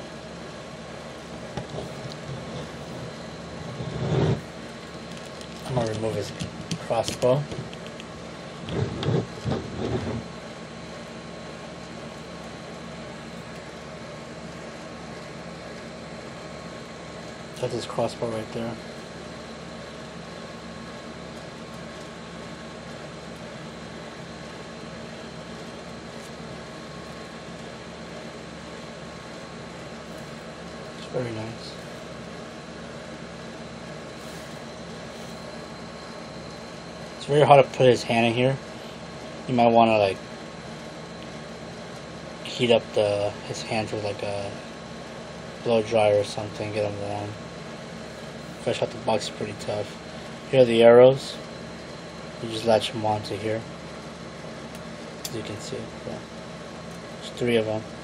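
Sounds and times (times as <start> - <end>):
low hum: 0.0 - 6.8
room noise hum and hiss: 0.0 - 58.0.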